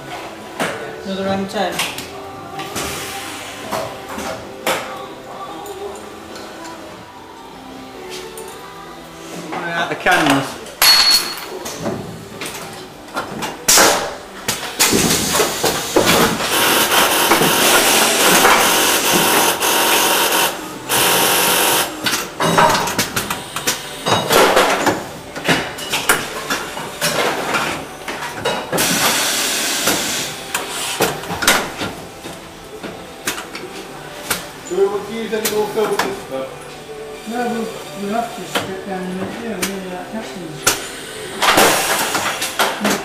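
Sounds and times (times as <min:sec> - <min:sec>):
air hissing: 0:02.8 - 0:03.8, 0:28.8 - 0:31.0.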